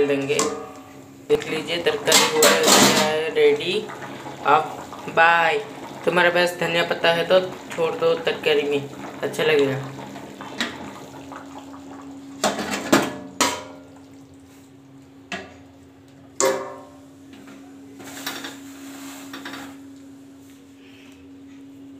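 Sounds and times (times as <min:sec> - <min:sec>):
steel utensils clattering: 0:02.0 - 0:03.2.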